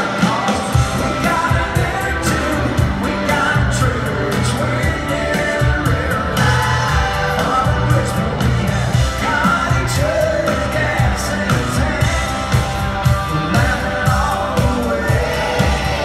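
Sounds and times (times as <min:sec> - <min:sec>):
country-rock band playing: 0:00.0 - 0:16.0
man singing: 0:00.0 - 0:16.0.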